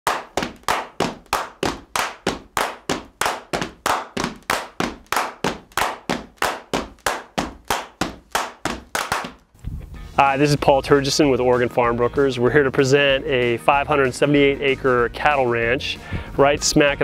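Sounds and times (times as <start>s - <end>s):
clap-like percussion hits: 0.1s - 9.5s.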